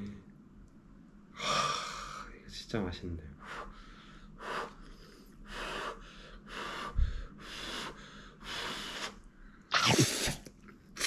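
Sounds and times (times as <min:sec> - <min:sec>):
person slurping noodles: 0:09.7 - 0:10.5.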